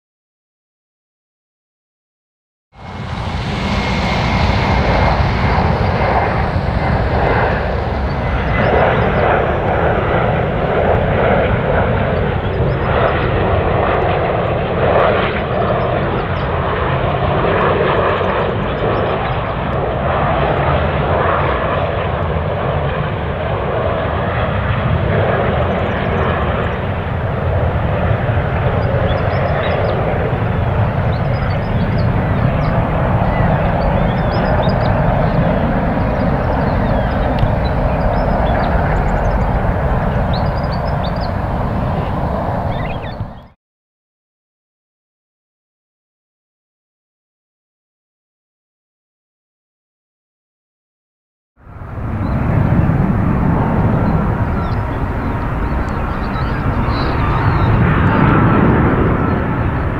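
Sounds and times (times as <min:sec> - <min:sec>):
jet engine noise: 0:02.7 - 0:43.6, 0:51.6 - 0:59.9
faint high whine: 0:02.8 - 0:13.2.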